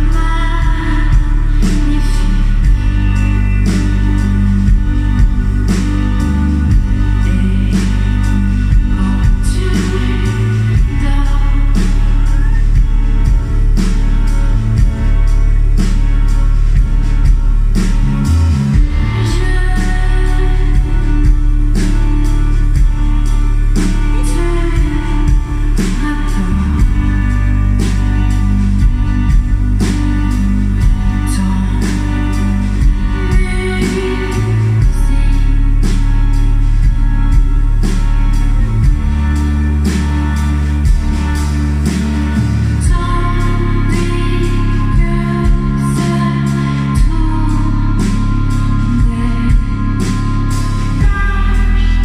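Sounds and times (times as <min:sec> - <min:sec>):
woman singing: 0:00.0 - 0:13.4, 0:18.8 - 0:22.9, 0:23.9 - 0:36.4, 0:42.7 - 0:52.0
live band playing: 0:00.0 - 0:52.0
low bass notes: 0:00.0 - 0:52.0.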